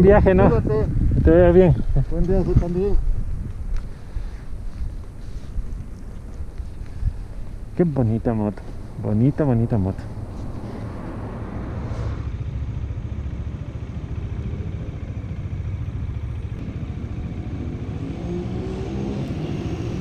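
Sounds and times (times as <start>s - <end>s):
road noise: 0.0s - 20.0s
motorcycle engine: 8.6s - 20.0s.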